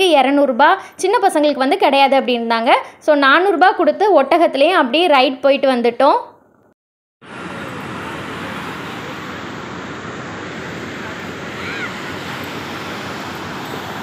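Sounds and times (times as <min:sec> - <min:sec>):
surf breaking on a beach: 0:07.2 - 0:14.0.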